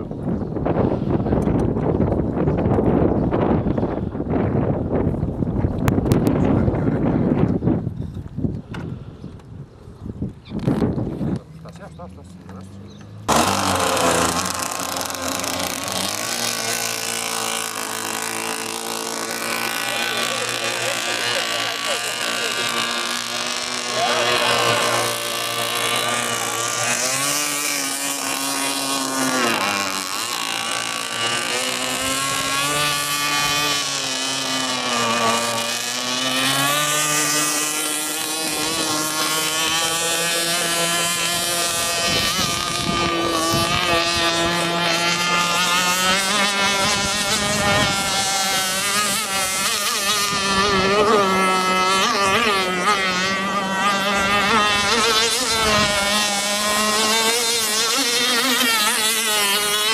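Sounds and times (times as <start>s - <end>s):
racing boat engine: 10.6s - 59.9s.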